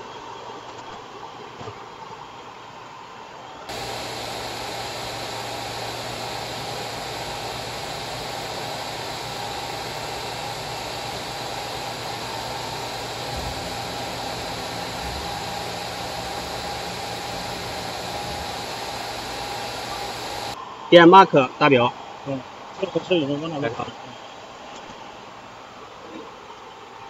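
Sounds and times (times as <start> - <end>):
machine fan-like hiss and hum: 0.0 - 27.0
deeper machine hum: 3.7 - 20.6.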